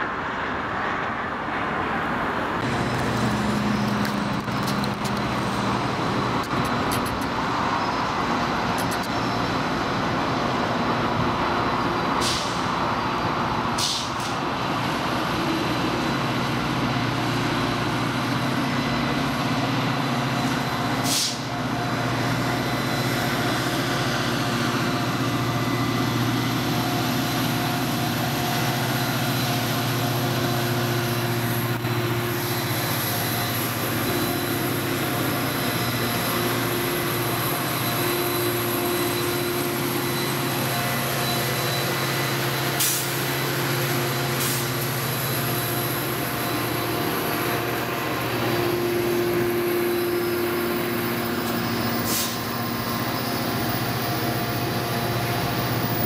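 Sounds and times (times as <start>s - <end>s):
diesel locomotive engine drone: 0.0s - 56.0s
sharp clicks: 8.8s - 9.2s.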